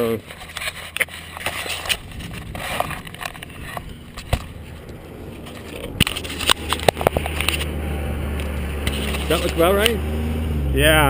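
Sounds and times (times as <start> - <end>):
camera handling clicks and knocks: 0.4 - 7.7
wind noise on microphone: 1.6 - 8.4.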